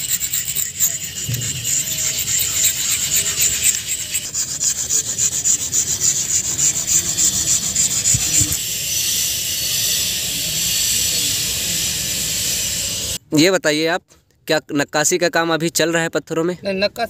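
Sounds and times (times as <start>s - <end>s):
stone scraping sandstone: 0.0s - 8.6s
steady hiss: 0.0s - 13.2s.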